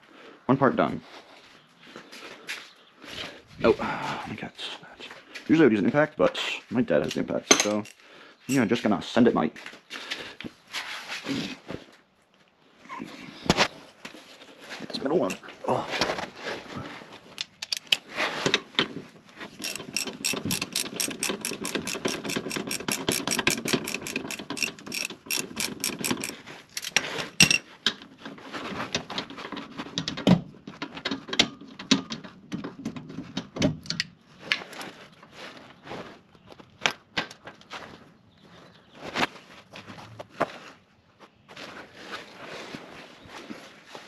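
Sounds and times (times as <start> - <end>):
ratchet wrench clicking: 19.6 - 27.6.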